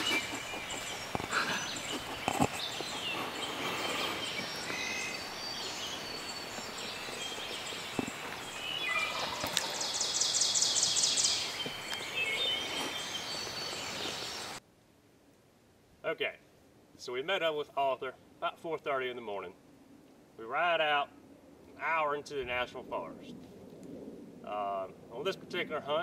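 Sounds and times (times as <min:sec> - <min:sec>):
distant turkey gobbling: 0:00.0 - 0:10.2
songbirds singing: 0:00.0 - 0:14.6.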